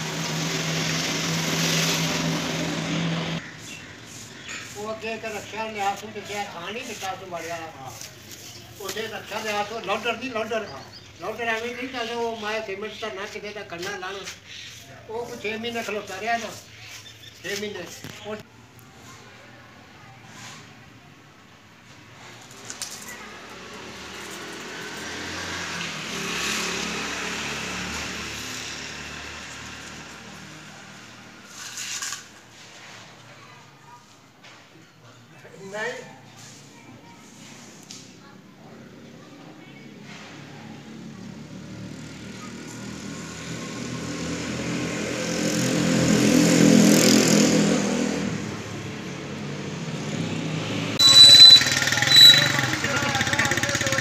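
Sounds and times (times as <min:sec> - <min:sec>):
motor vehicle passing by: 0:00.0 - 0:13.8, 0:21.9 - 0:33.2, 0:37.2 - 0:54.0
short high tone: 0:51.0 - 0:52.7.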